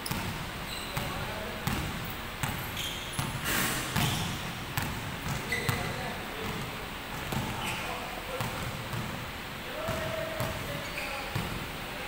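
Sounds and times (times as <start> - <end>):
sneaker squeaks: 0.0 - 6.6, 7.2 - 8.6, 9.9 - 11.6
basketball bouncing on wooden floor: 1.0 - 2.6, 4.0 - 7.6.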